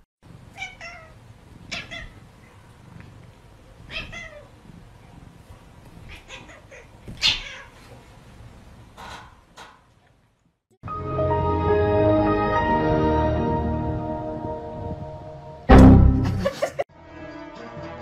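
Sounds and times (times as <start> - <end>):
cat meowing: 3.9 - 4.5, 6.1 - 7.8.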